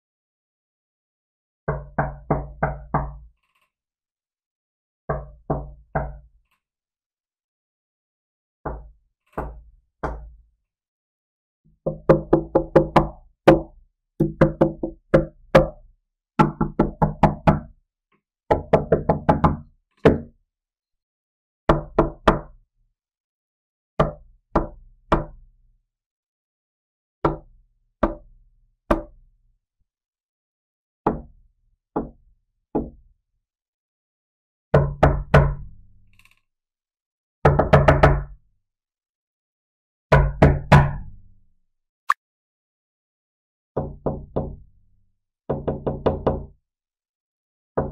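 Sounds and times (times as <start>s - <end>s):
knocking on a door: 1.7s - 3.2s, 5.1s - 6.3s, 8.7s - 10.3s, 11.8s - 15.8s, 16.4s - 17.7s, 18.5s - 20.3s, 21.7s - 22.5s, 31.1s - 31.3s, 32.0s - 32.2s, 32.8s - 33.0s, 37.4s - 38.3s, 40.1s - 41.1s, 43.8s - 44.6s, 45.5s - 46.4s.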